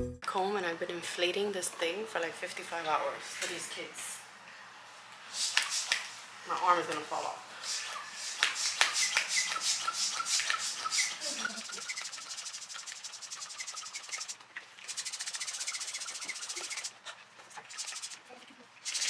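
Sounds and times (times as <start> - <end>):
electric air pump buzzing: 5.3 - 17.0, 17.7 - 19.0.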